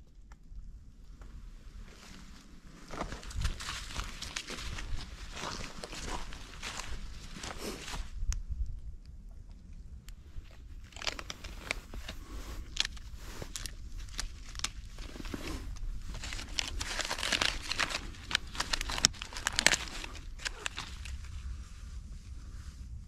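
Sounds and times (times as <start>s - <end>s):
bark tearing and crackling: 2.9s - 8.0s, 10.5s - 21.3s
sharp crack: 10.9s - 21.2s.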